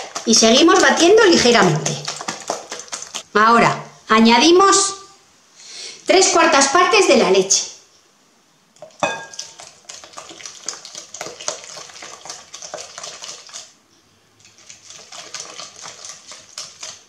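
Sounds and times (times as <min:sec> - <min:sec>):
whisk beating in glass bowl: 0:00.0 - 0:03.2, 0:08.8 - 0:13.7, 0:14.4 - 0:17.0
ringing knock on bowl: 0:09.0 - 0:09.4.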